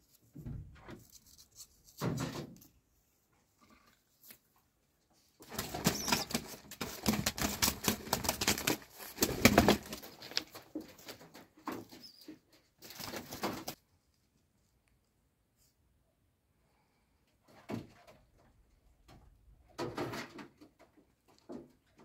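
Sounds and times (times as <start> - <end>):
pigeon wings flapping: 5.4 - 11.2.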